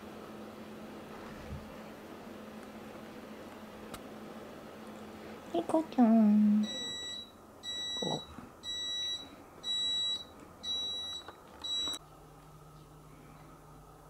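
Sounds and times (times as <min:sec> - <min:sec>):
faint low room hum: 0:00.0 - 0:14.0.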